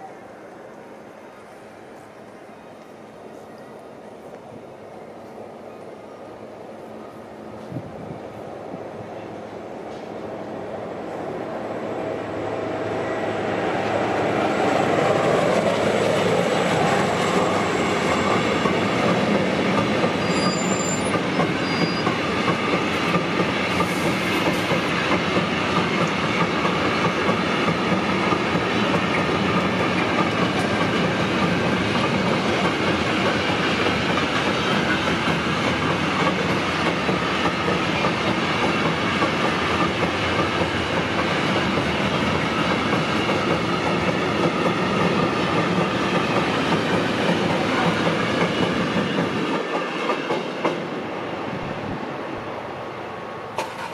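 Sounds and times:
train wheels rumbling on rail: 0.0 - 53.9
clickety-clack over rail joints: 14.9 - 51.0, 53.5 - 53.9.

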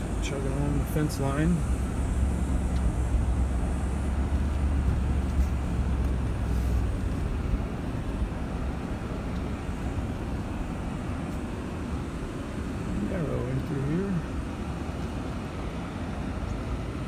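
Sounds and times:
pickup truck engine rumble: 0.0 - 17.0.

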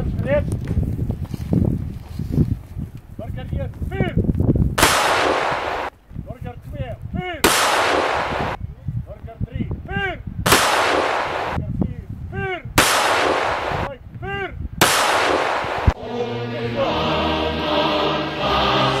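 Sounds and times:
rifle volleys with echo: 4.8 - 5.9, 7.4 - 8.6, 10.5 - 11.6, 12.8 - 13.9, 14.8 - 16.0.

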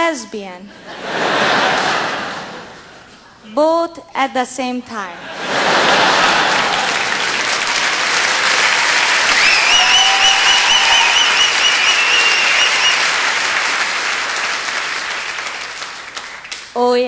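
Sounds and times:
audience applauding: 5.4 - 16.8
high wavering whistle: 9.2 - 13.2.

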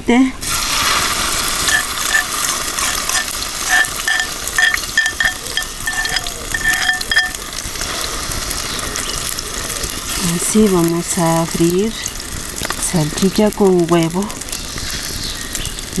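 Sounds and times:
food sizzling in a pan: 0.4 - 16.0
clay bowl scraping a pan: 1.1 - 7.5
short high squeaks: 1.7 - 7.4.

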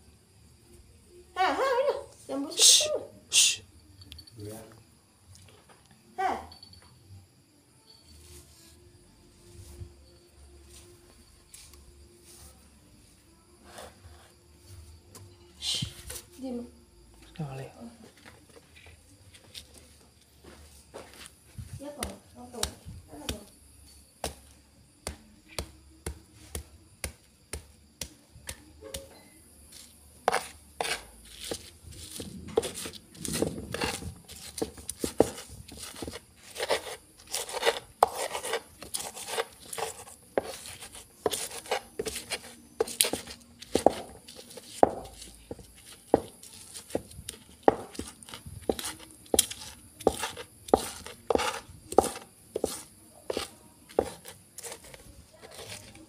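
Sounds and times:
pestle grinding roughly: 32.6 - 44.1, 47.7 - 54.9
stone pestle pounding in mortar: 32.6 - 54.8.

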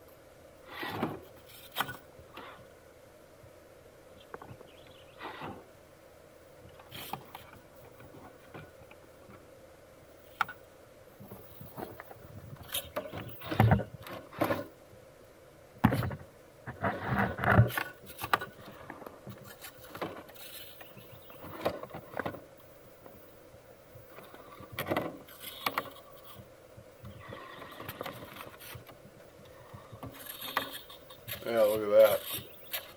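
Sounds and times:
tyres scraping on stone: 15.8 - 22.4, 29.6 - 32.9.

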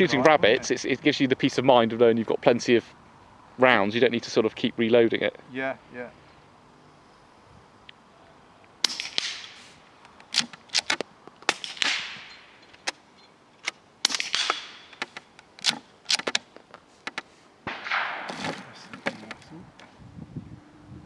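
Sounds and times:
suppressed rifle shots: 8.8 - 13.0, 13.6 - 16.4, 17.6 - 19.0.

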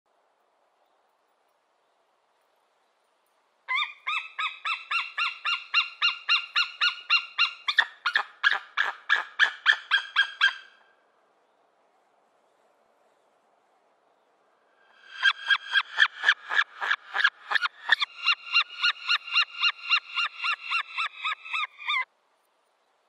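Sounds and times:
eagle yelping calls: 3.7 - 10.8, 15.1 - 22.1.

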